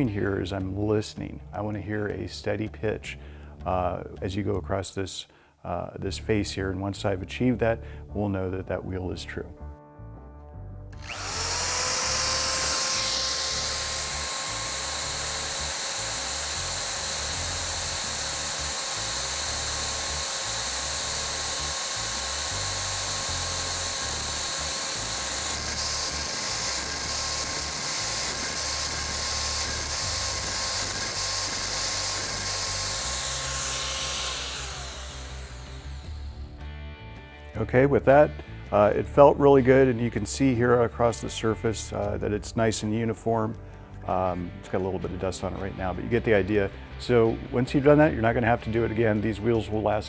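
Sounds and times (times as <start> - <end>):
grinding hiss: 11.0 - 36.5
drill whine: 11.0 - 36.6.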